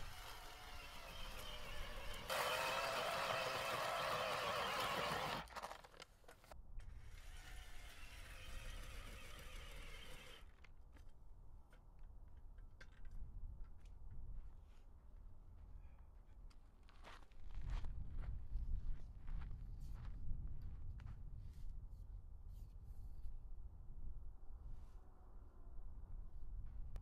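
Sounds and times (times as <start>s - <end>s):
earth auger grinding into soil: 0.0s - 10.6s.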